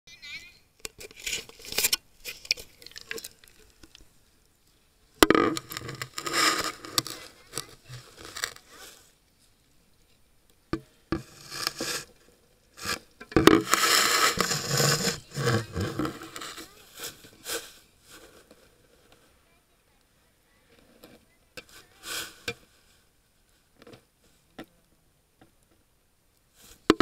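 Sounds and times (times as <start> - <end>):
camera handling scraping: 5.3 - 8.6, 12.8 - 17.6.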